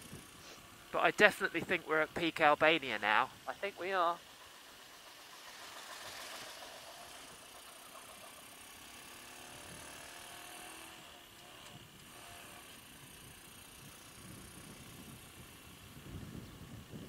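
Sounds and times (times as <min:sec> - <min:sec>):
road and wind noise: 0:00.0 - 0:17.0
small motorbike engine running: 0:00.0 - 0:17.0.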